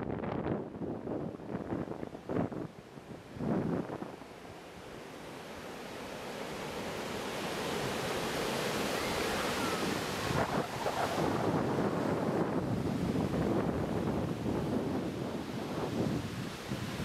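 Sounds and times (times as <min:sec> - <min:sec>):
wind gust on microphone: 0:00.0 - 0:04.2, 0:07.4 - 0:17.0
ocean surf breaking: 0:04.6 - 0:17.0.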